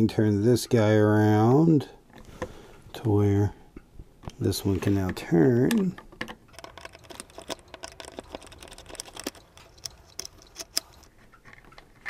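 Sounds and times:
screwdriver clicking on rifle: 6.2s - 11.7s.

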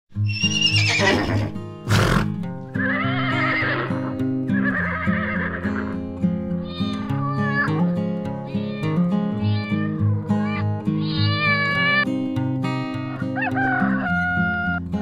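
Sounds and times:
horse whinnying: 0.2s - 6.0s
background music: 0.2s - 15.0s.

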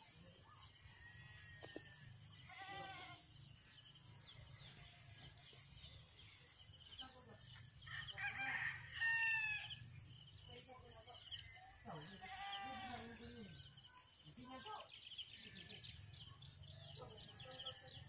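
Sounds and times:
crickets chirping: 0.0s - 18.0s
rooster crowing: 7.9s - 9.8s.

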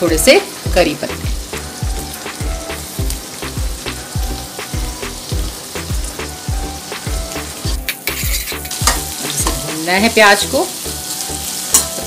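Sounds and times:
onions sizzling in hot oil: 0.0s - 12.0s
background music with beat: 0.7s - 10.0s.

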